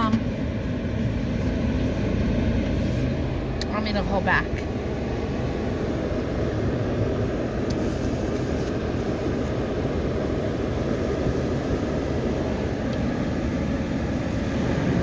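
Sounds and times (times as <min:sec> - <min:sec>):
muffled water jets spraying car: 0:00.0 - 0:15.0.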